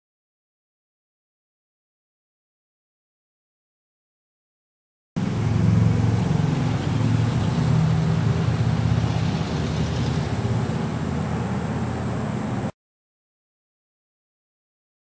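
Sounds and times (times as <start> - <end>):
faint high hiss: 5.2 - 12.7
motor vehicle engine rumble: 5.2 - 12.7.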